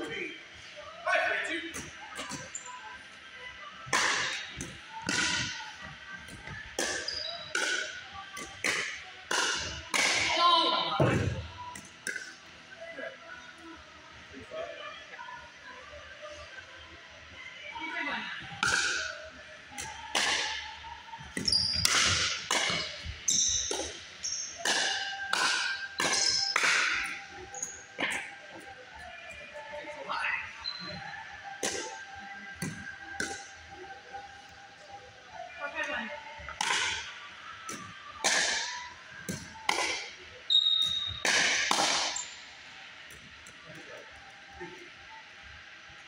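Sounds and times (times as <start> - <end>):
sneakers squeaking on hardwood: 6.4 - 7.9, 21.4 - 24.6.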